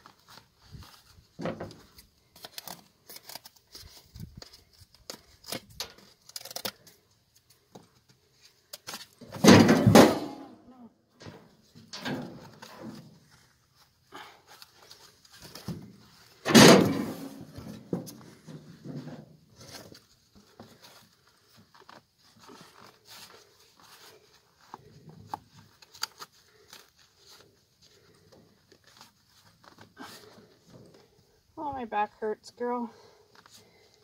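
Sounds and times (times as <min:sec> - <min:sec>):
bandage rustling: 0:00.0 - 0:09.3, 0:12.4 - 0:16.4, 0:19.5 - 0:31.5.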